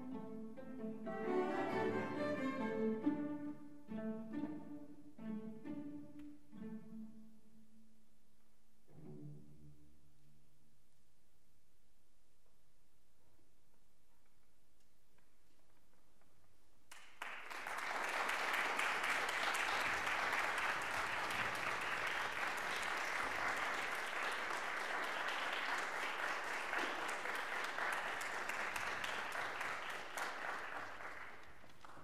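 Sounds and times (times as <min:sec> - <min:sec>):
audience applauding: 0:16.9 - 0:32.0.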